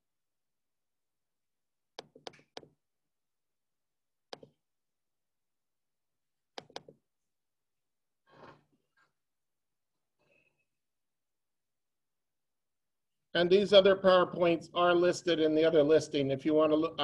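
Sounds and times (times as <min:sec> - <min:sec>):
computer clicks: 0:06.5 - 0:07.0.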